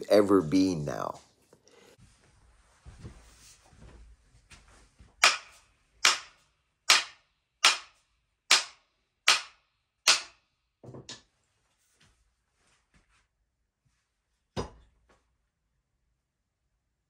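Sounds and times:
hammer striking axe handle: 5.2s - 7.9s, 8.5s - 10.4s.

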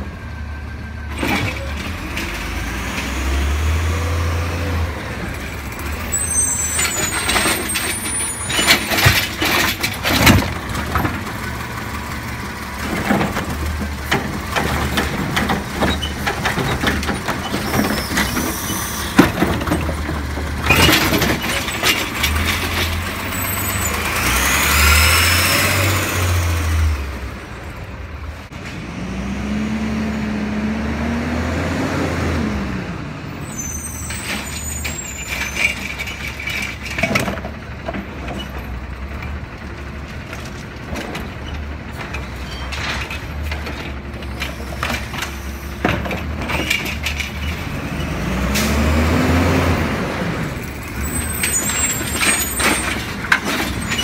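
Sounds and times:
truck engine revving: 1.3s - 8.7s, 9.8s - 27.5s, 28.5s - 33.2s, 42.9s - 54.0s
hydraulic arm clanks and bangs: 6.8s - 11.4s, 12.8s - 23.2s, 50.9s - 54.0s.

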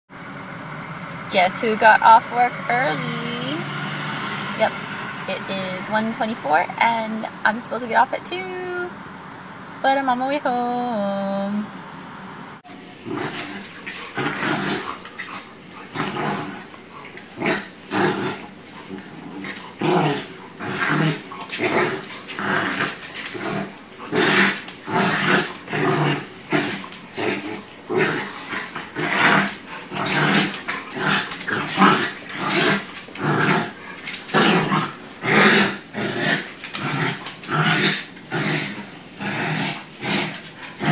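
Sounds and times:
dogs growling: 12.7s - 40.9s.

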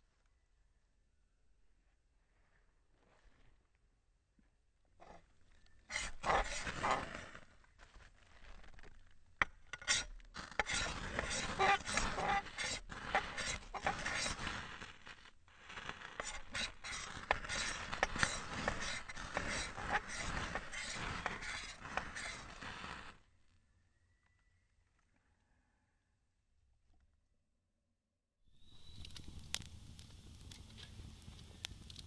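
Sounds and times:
ferrocerium rod scraping: 5.0s - 5.2s, 5.8s - 23.2s.

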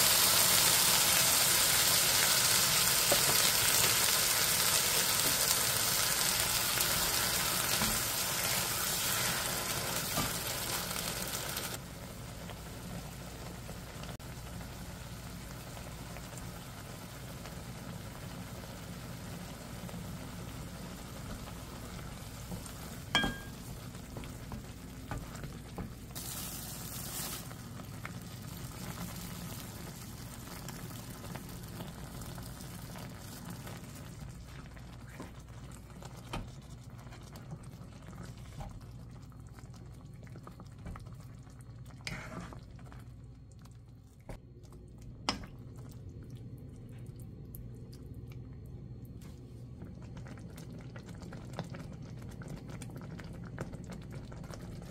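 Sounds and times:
sauce bubbling in a pot: 0.0s - 54.9s
spoon knocking against pot: 23.2s - 23.6s.

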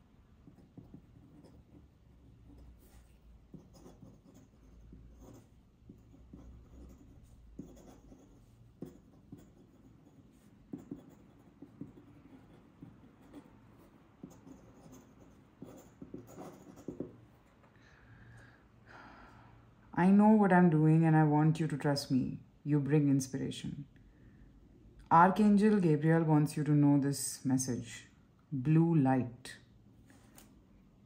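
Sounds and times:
pen nib scratching paper: 0.4s - 17.2s.

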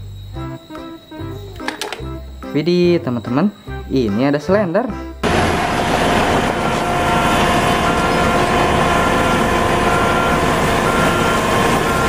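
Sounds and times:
backup alarm beeping: 5.2s - 12.0s
road roller engine droning: 5.2s - 12.0s.

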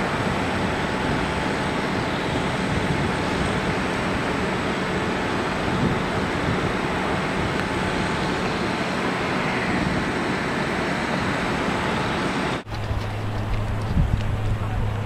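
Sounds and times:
diesel engines running: 0.0s - 15.0s.

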